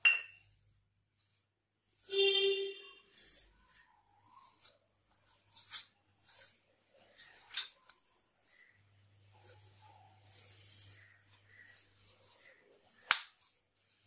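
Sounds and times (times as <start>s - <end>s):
fingers scraping flour on metal plate: 0.4s - 8.8s.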